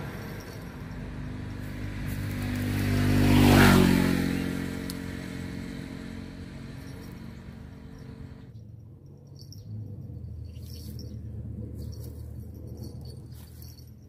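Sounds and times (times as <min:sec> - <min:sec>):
vehicle driving past: 0:00.0 - 0:08.5.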